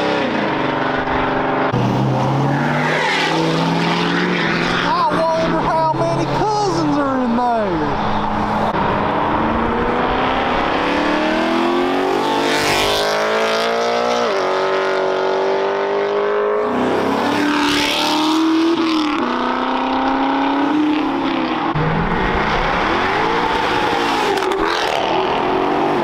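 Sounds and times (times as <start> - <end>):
car engine accelerating hard: 7.7 - 26.0.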